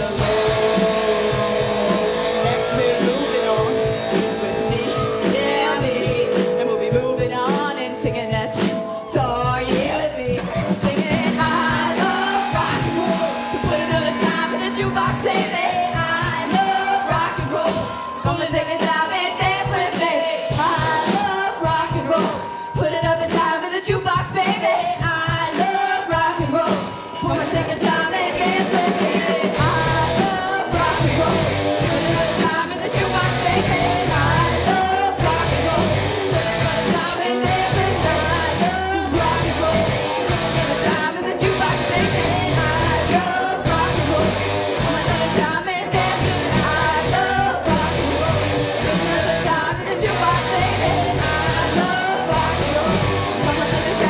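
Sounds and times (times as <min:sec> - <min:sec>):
bass guitar: 0:00.0 - 0:23.1, 0:26.5 - 0:54.0
drums: 0:00.0 - 0:54.0
electric guitars: 0:00.0 - 0:54.0
woman singing lead: 0:00.0 - 0:54.0.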